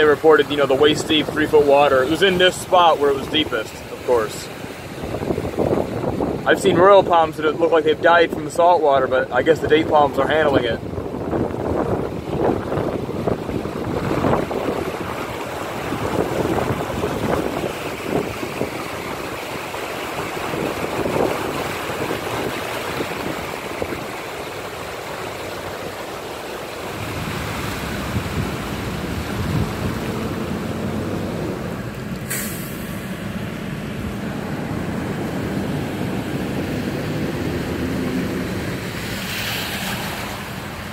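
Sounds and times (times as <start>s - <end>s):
wind buffeting microphone: 0.0s - 8.8s, 9.4s - 32.1s
tyres splashing through water: 0.0s - 40.9s.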